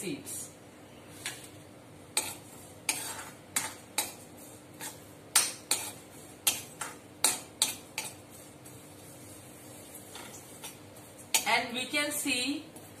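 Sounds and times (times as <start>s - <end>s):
metal spoon scraping wok: 2.1s - 9.3s.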